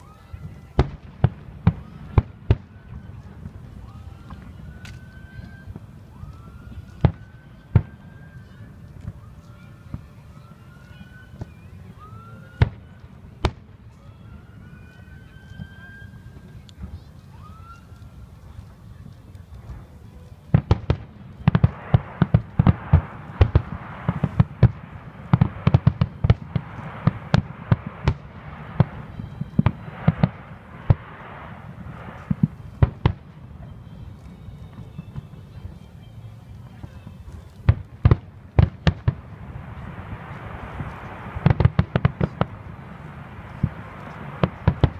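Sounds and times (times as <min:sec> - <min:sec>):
fireworks crackling: 0:00.0 - 0:44.9.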